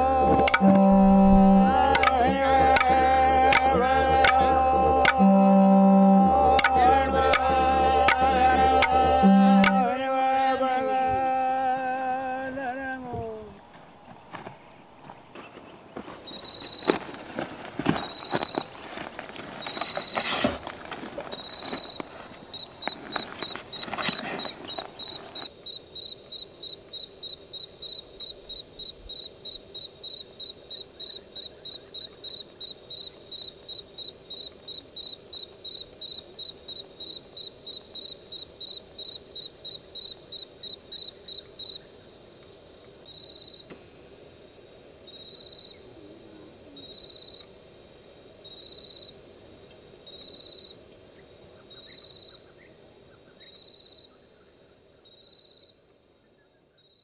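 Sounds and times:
high-pitched pulsing tone: 0.0s - 11.0s
low steady hum: 0.0s - 25.6s.

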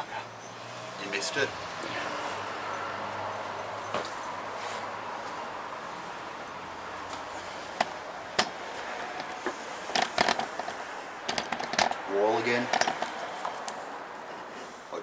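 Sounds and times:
steady background noise: 0.0s - 15.0s
sharp knocks and clicks: 7.8s - 12.0s.

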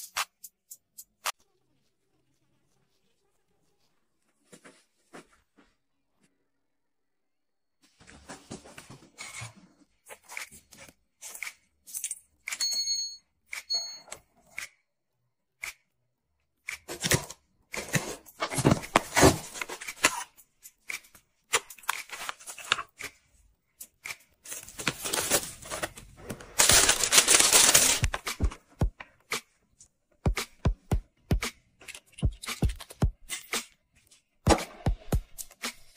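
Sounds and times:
loud rustling or tearing: 24.5s - 28.4s.

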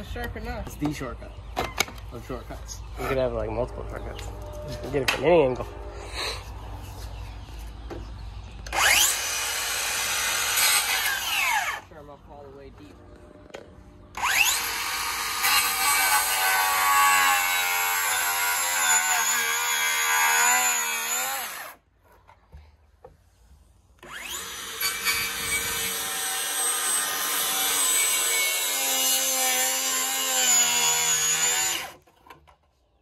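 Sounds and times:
circular saw cutting wood: 8.6s - 12.0s, 14.1s - 21.8s, 24.0s - 32.2s.

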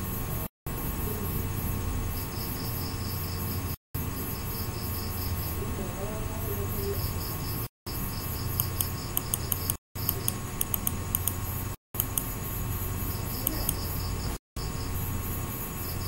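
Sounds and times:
background hiss and hum: 0.0s - 16.0s
mouse clicks: 8.5s - 11.4s, 12.0s - 12.3s
mouse scroll wheel ticks: 8.5s - 11.4s, 12.0s - 12.3s, 13.4s - 13.9s
faint high chirping: 13.0s - 15.0s.

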